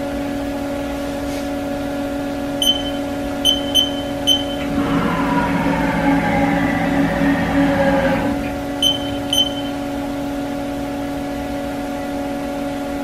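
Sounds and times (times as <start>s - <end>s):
short high key beeps: 2.6s - 4.7s, 8.8s - 9.9s
falling whine: 2.6s - 10.0s
milling machine humming: 2.6s - 10.6s.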